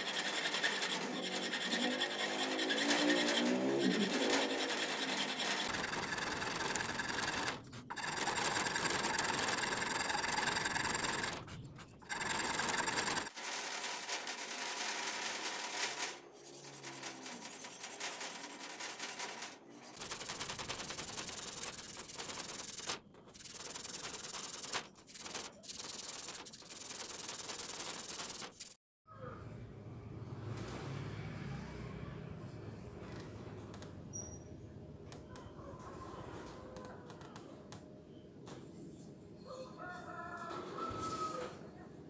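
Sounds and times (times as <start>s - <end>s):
file scraping wood: 0.0s - 13.3s
abrasive strip sanding wood: 0.0s - 13.8s, 15.5s - 28.8s.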